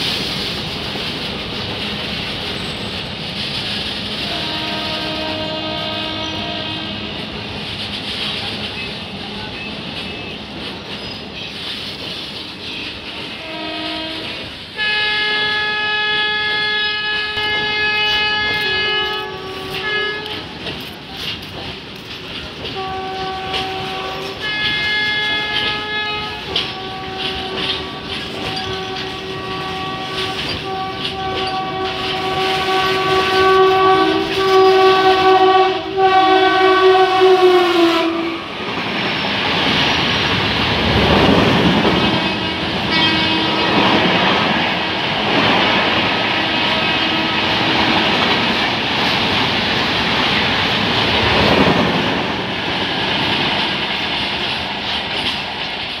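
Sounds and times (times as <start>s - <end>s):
train wheels clattering over rail joints: 0.0s - 14.7s, 17.4s - 35.6s, 38.7s - 56.0s
locomotive horn blast: 4.1s - 7.5s, 13.3s - 20.6s, 22.6s - 38.7s, 41.7s - 45.3s, 46.0s - 48.4s.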